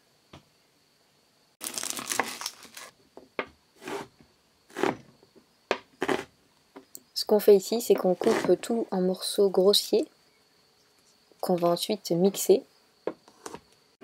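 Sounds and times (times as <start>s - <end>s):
knife slicing onion on wooden board: 3.8s - 4.1s, 4.7s - 5.1s, 5.7s - 6.3s, 7.9s - 8.7s.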